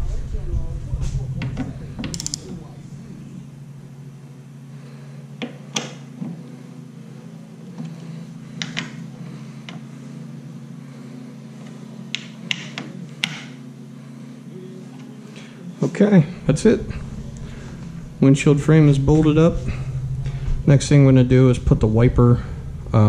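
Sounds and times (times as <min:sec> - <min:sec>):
steady low hum: 0:00.0 - 0:23.0
ratchet wrench clicking: 0:02.0 - 0:02.5.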